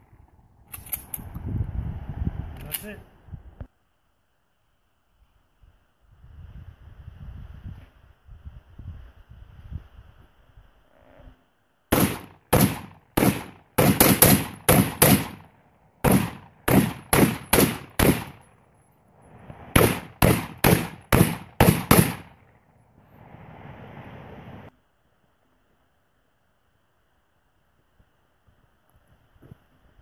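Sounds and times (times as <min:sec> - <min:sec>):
rifle shots: 0:11.9 - 0:18.5, 0:19.7 - 0:22.5.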